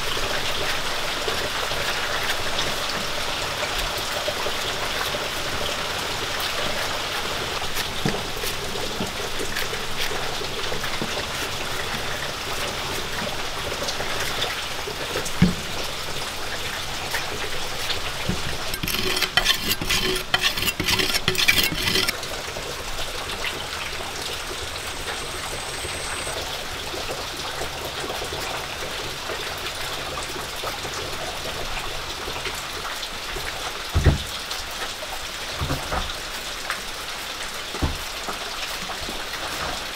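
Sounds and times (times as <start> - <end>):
knife rasping on clay: 7.6 - 10.2, 18.6 - 22.2.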